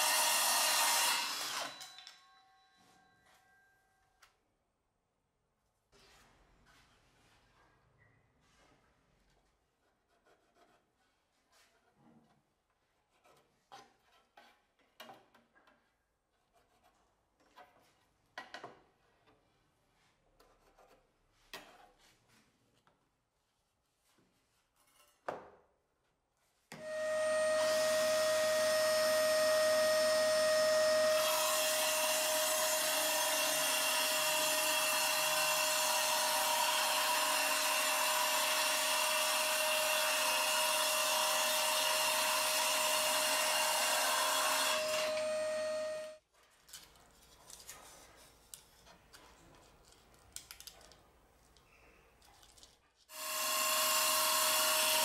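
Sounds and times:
circular saw cutting plywood: 0.0 - 1.9, 26.8 - 46.2, 53.1 - 55.0.

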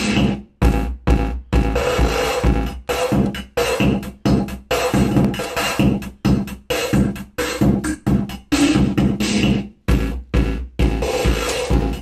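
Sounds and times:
stuttering electronic music: 0.0 - 12.0.

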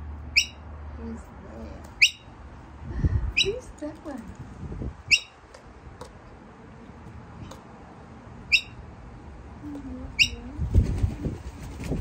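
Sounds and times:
kookaburra calls: 0.3 - 0.6, 2.0 - 2.3, 5.1 - 5.4, 8.5 - 8.8, 10.2 - 10.4.

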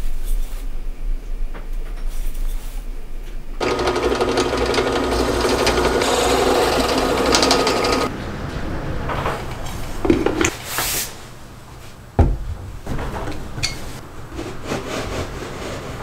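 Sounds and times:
drill bit grinding metal: 3.6 - 8.1
drill press motor whine: 3.6 - 8.1.

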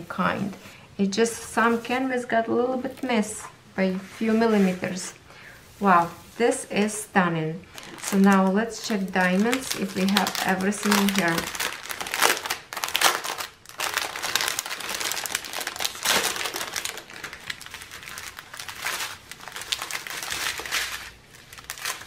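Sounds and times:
plastic bag crinkling: 7.7 - 22.0.

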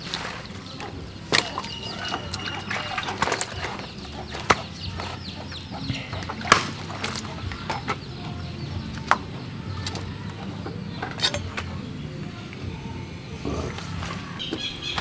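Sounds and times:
birds chirping: 0.0 - 15.0
chickens clucking: 0.0 - 15.0
blade chopping carcass: 6.3 - 7.3.

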